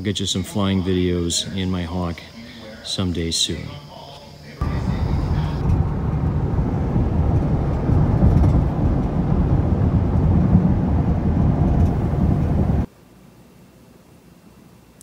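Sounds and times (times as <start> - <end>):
car tyre and engine rumble: 4.6 - 12.9.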